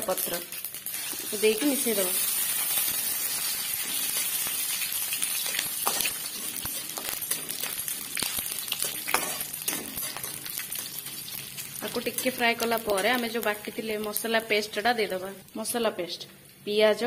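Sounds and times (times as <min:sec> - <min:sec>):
food sizzling in hot oil: 0:00.0 - 0:15.2
metal spatula scraping pan: 0:08.8 - 0:11.1.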